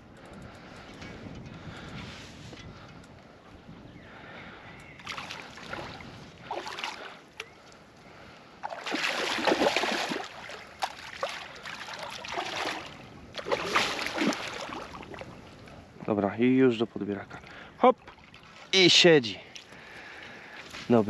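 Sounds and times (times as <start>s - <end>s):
water splashing: 5.1s - 7.2s, 8.6s - 15.3s
fish thrashing at water surface: 8.6s - 15.1s.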